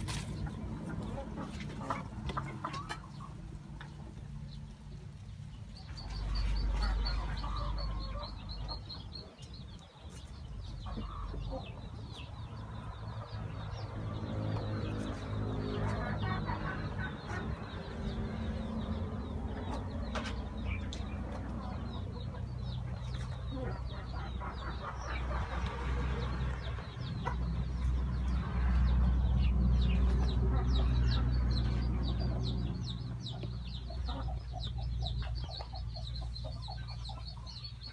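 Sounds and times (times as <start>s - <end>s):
hens clucking: 0.0s - 37.9s.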